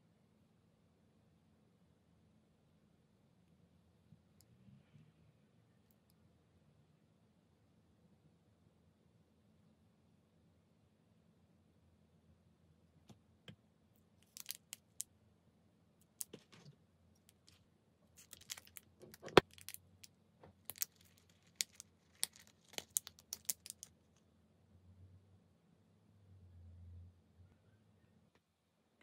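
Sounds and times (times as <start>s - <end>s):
packet crinkling: 14.2s - 15.0s, 17.3s - 19.9s, 20.6s - 23.9s
plastic toy pieces clicking: 20.6s - 23.9s.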